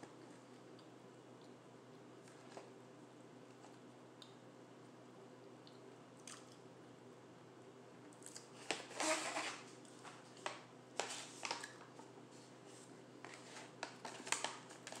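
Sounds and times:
plastic pouch crinkling: 0:13.2 - 0:15.0.

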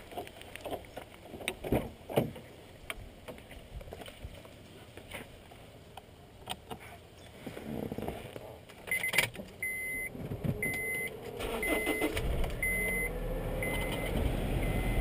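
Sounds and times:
car warning chime beeping: 0:08.9 - 0:15.0.

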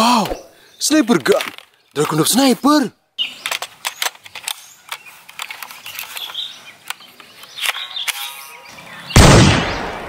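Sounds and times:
loud gunshot bang: 0:09.2 - 0:10.0.

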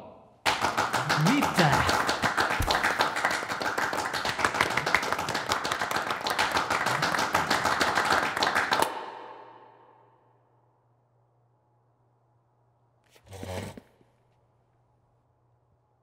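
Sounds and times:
people clapping: 0:00.4 - 0:09.5.

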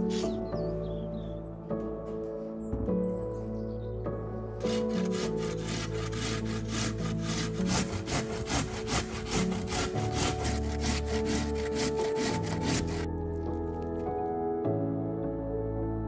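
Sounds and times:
potato rasping on a grater: 0:04.7 - 0:13.1.

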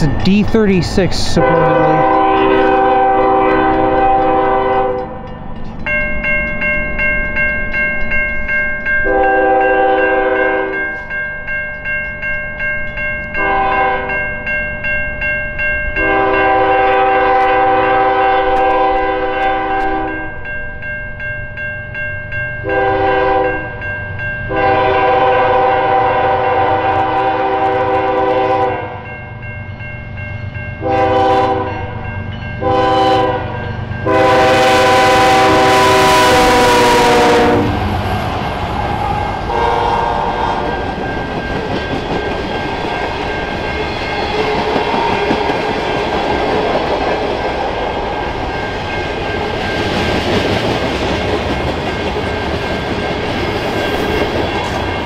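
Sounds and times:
diesel locomotive rumble: 0:00.0 - 0:05.8, 0:30.9 - 0:46.2
crossing warning bell ringing: 0:00.0 - 0:55.0
train air horn blasts: 0:01.4 - 0:05.0, 0:09.0 - 0:10.8, 0:13.4 - 0:14.1, 0:16.0 - 0:20.3, 0:22.6 - 0:23.7, 0:24.5 - 0:29.0, 0:30.8 - 0:32.0, 0:32.6 - 0:37.9, 0:39.0 - 0:40.8.

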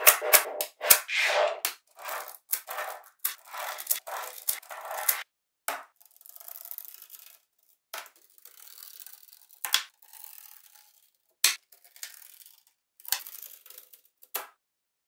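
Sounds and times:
balls rolling and rattling: 0:00.0 - 0:05.2.

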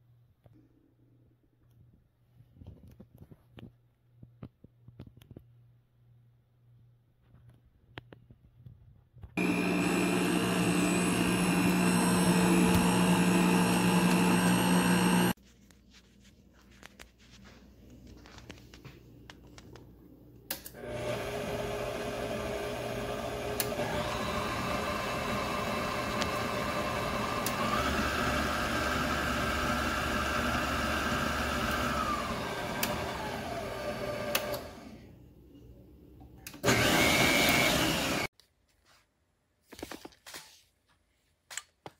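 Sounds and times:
stand mixer motor whining: 0:09.4 - 0:15.4, 0:20.7 - 0:35.1, 0:36.6 - 0:38.3.

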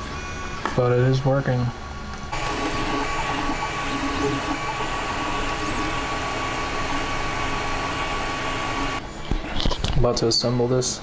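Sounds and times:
cooling fans running: 0:00.7 - 0:09.2
stepper motor tones: 0:02.3 - 0:09.0.

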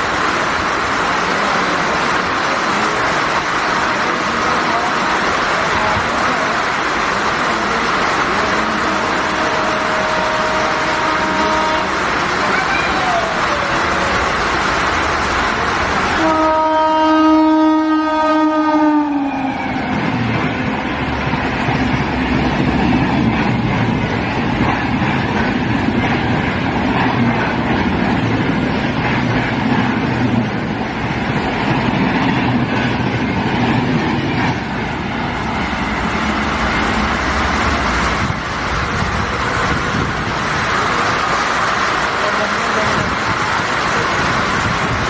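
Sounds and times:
train wheels rumbling on rail: 0:00.0 - 0:45.0
locomotive horn: 0:08.6 - 0:12.2, 0:16.2 - 0:19.6.

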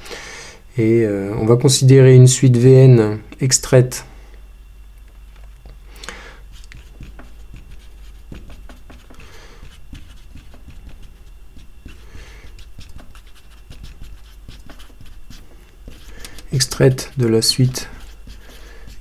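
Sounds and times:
marker scratching on whiteboard: 0:06.5 - 0:19.0
soft breaths: 0:11.9 - 0:12.6, 0:17.8 - 0:19.0.

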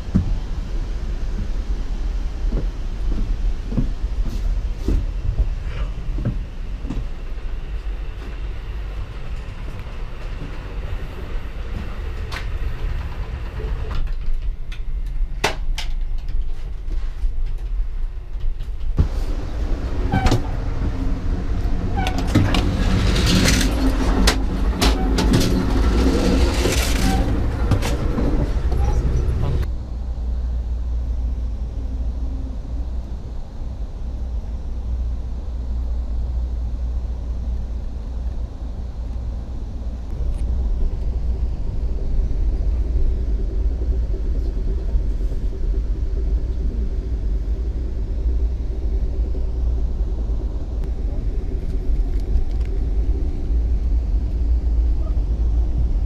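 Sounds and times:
train rumbling: 0:00.0 - 0:56.0
train wheels clicking and rattling: 0:02.4 - 0:29.7.

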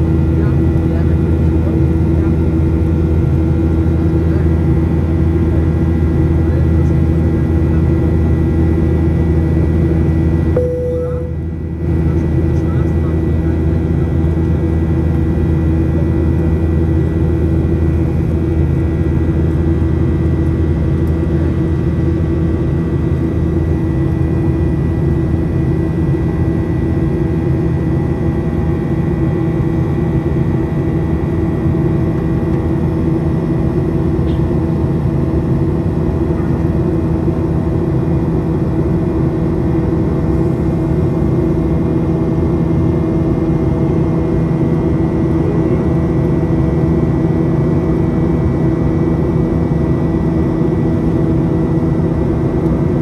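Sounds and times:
jet engine drone in cabin: 0:00.0 - 0:53.0.

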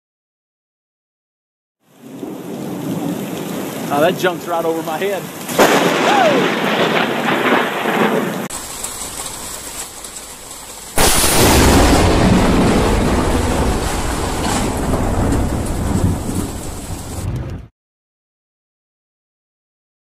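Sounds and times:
rain: 0:01.8 - 0:17.7
thunder rumbling: 0:01.9 - 0:17.7
loud thunderclap: 0:05.4 - 0:09.4, 0:10.9 - 0:17.7.

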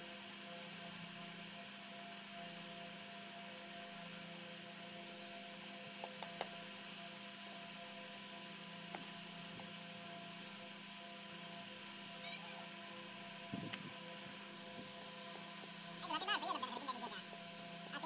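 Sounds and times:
steady electrical hum: 0:00.0 - 0:18.0
sharp clicks: 0:06.0 - 0:06.6.

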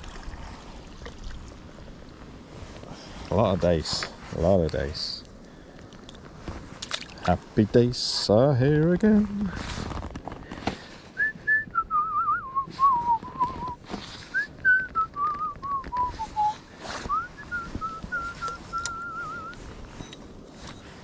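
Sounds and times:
person whistling a tune: 0:11.2 - 0:19.6.

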